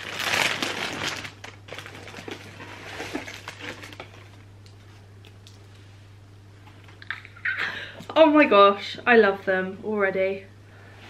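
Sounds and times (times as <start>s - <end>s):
tissue paper crinkling: 0.0s - 5.0s.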